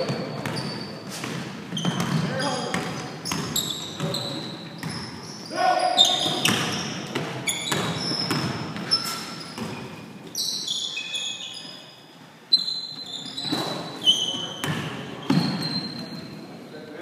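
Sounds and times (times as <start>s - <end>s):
sneakers squeaking: 0.0s - 16.6s
basketball bouncing on hardwood: 6.3s - 8.9s.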